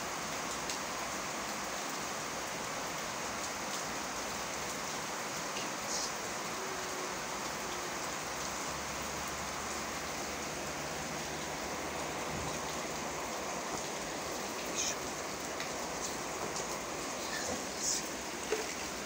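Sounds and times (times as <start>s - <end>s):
steady rain falling: 0.0s - 19.0s.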